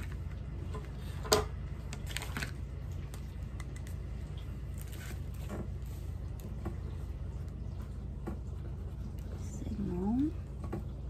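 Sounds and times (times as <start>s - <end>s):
steady low hum: 0.0s - 11.0s
plastic bag handled: 1.8s - 3.5s.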